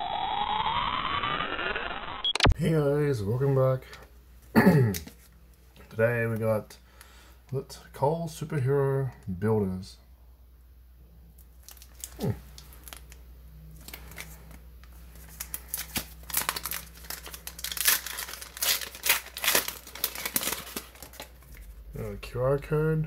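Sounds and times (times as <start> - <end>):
plastic wrapper tearing and crinkling: 11.4 - 13.2, 13.8 - 21.8.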